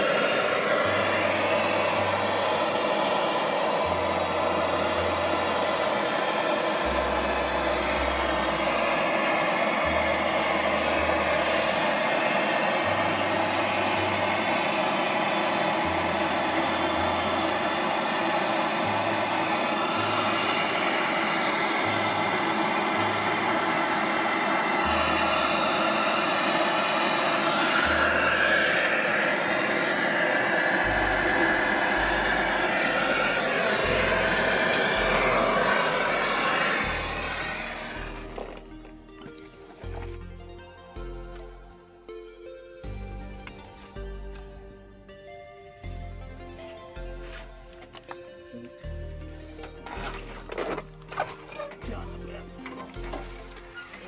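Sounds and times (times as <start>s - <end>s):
steady whirring drone: 0.0s - 41.5s
low bass line: 30.6s - 47.8s.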